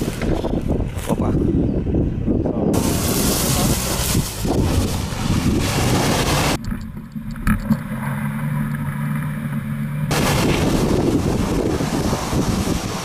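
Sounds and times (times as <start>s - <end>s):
wind on microphone: 0.0s - 7.3s, 10.1s - 13.0s
muffled car engine running: 2.8s - 13.0s.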